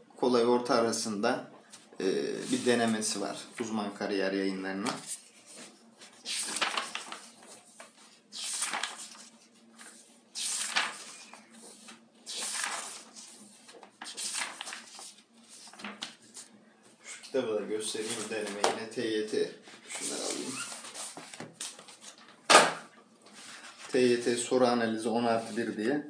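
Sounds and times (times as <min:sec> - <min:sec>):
paper pages turning: 0:04.8 - 0:18.8, 0:19.8 - 0:22.7.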